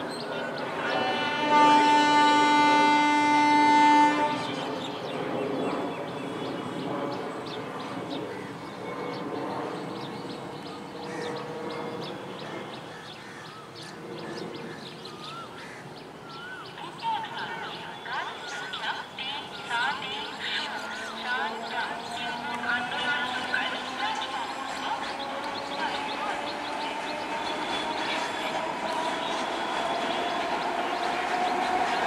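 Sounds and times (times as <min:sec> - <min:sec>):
train rumbling on rails: 0:00.0 - 0:32.0
train horn blast: 0:00.7 - 0:04.8.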